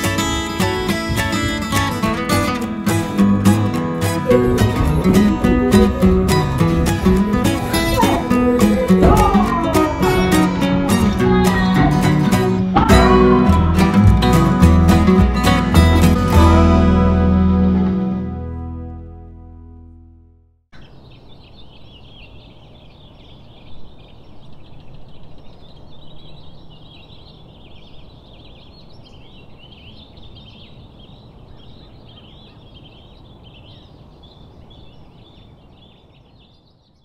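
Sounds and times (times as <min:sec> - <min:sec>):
animals chattering: 0:00.0 - 0:14.5
acoustic guitar music: 0:00.0 - 0:20.5.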